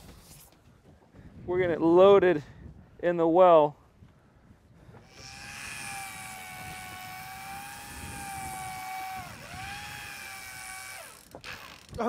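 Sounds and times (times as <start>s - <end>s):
fishing reel motor whining: 5.0s - 12.0s.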